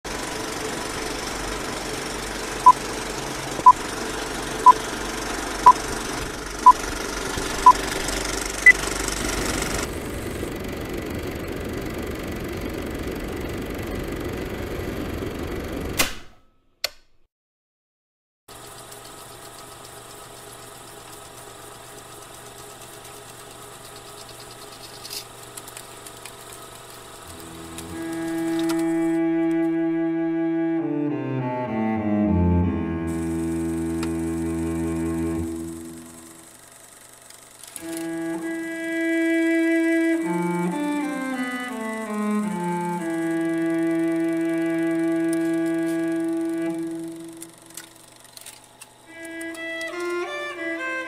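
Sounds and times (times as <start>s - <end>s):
mechanical whirring: 6.6s - 11.4s, 18.5s - 29.8s, 33.1s - 50.3s
click: 16.8s - 17.1s
solo cello music: 27.4s - 36.1s, 38.0s - 47.1s, 49.1s - 51.0s.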